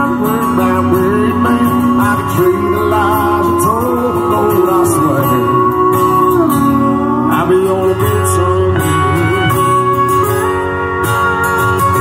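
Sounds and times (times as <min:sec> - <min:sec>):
keyboard: 0:00.0 - 0:12.0
sliding lead melody: 0:00.0 - 0:12.0
strummed acoustic guitar: 0:00.0 - 0:12.0.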